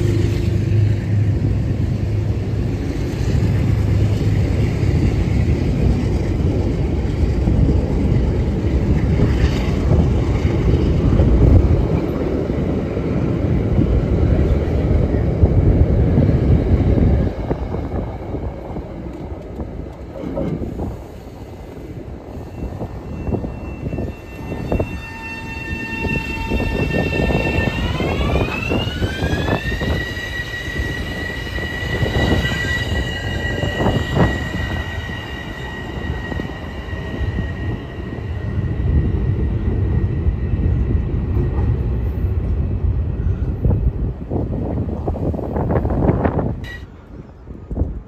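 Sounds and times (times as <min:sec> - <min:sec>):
train rumbling on rails: 0:00.0 - 0:48.0.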